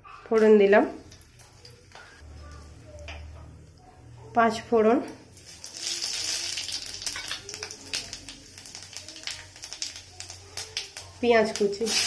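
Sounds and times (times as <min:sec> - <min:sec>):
seeds crackling and popping: 0:05.1 - 0:12.0
seeds sizzling in hot oil: 0:05.2 - 0:12.0.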